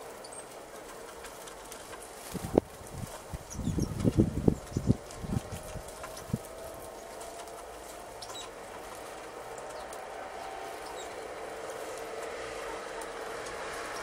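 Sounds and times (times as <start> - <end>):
steady outdoor hum: 0.0 - 14.0
tits calling: 0.0 - 14.0.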